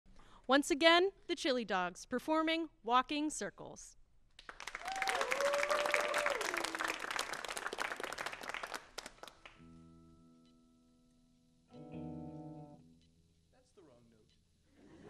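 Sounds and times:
applause: 4.4 - 9.6
cheering whoop: 4.8 - 7.0
electric guitar chord: 9.6 - 13.1.

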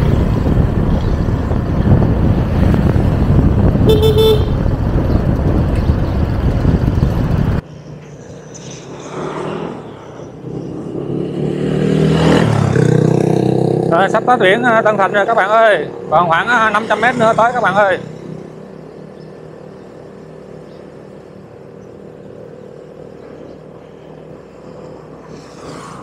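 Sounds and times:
wind over microphone: 0.0 - 7.6
motor scooter road noise: 0.0 - 26.0
horn toot: 3.8 - 4.7.

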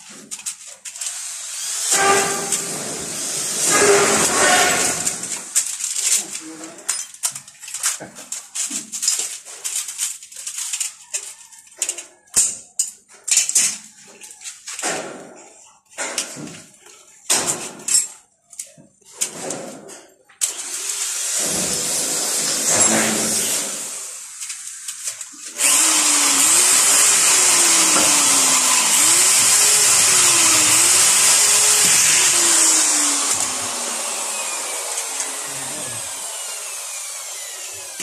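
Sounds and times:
cordless drill drilling: 1.0 - 5.6, 20.4 - 24.8, 25.4 - 38.0.

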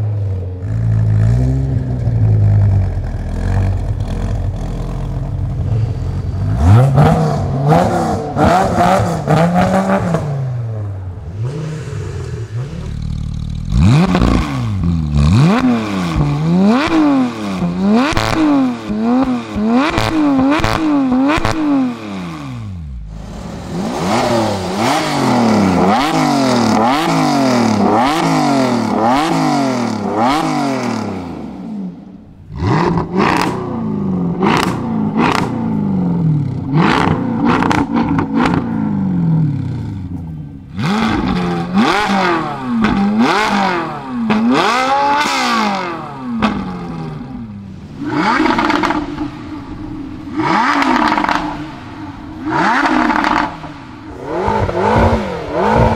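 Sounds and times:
car engine blipped rapidly: 0.0 - 55.9
car engine idling and revving: 0.0 - 55.9.

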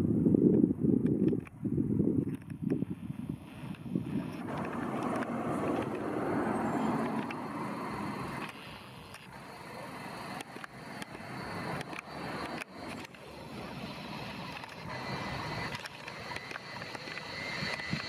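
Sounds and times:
passing vehicle rushing: 4.4 - 8.5
faint clicks: 14.4 - 18.0.

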